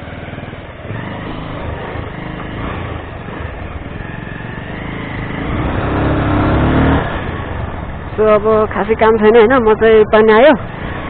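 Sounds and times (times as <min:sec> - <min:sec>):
motorcycle engine pulling away: 0:00.0 - 0:08.2.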